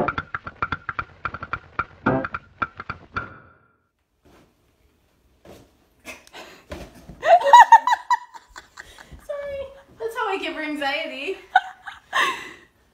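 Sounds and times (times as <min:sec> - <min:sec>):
person laughing: 0:07.2 - 0:09.1.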